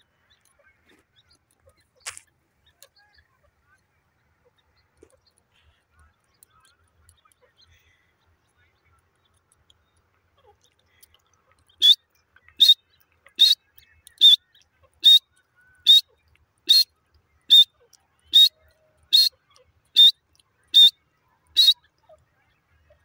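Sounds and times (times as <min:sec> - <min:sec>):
grey francolin calling: 0:11.8 - 0:13.6, 0:14.2 - 0:15.2, 0:15.8 - 0:16.9, 0:17.5 - 0:23.0.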